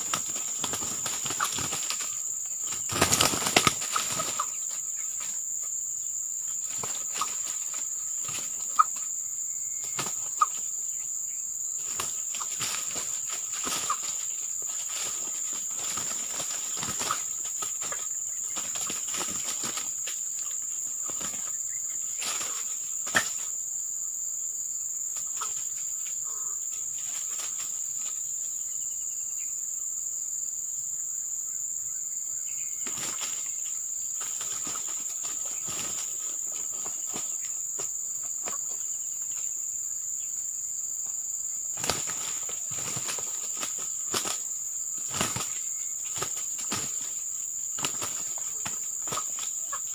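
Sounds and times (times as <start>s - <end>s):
roosters flapping and scuffling: 0.0s - 5.6s, 6.5s - 9.1s, 9.8s - 10.8s, 11.8s - 23.6s, 25.2s - 26.1s, 26.8s - 28.3s, 32.8s - 39.5s, 41.7s - 49.9s
high-pitched insect drone: 0.0s - 49.9s.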